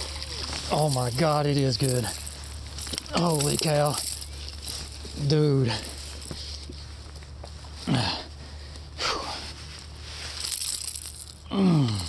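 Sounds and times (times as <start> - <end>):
clothing and brush rustling: 0.0 - 11.4
man breathing heavily: 4.1 - 7.0, 7.7 - 10.0, 11.4 - 12.0.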